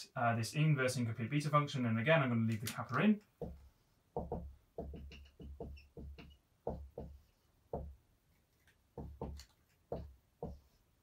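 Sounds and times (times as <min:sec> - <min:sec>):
pen tapping on a board: 0:03.4 - 0:08.0, 0:08.9 - 0:10.8.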